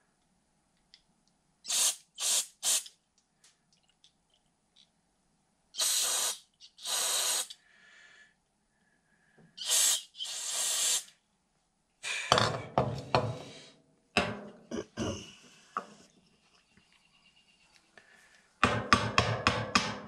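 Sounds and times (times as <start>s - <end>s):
aerosol spray hissing: 1.7s - 2.9s, 5.8s - 7.6s, 9.6s - 11.1s
knocks on metal part: 14.2s - 14.6s, 18.6s - 20.0s.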